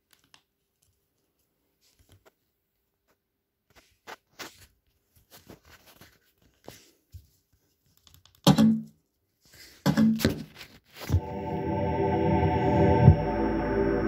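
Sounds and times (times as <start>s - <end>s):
low booming bass hits: 12.3s - 14.0s.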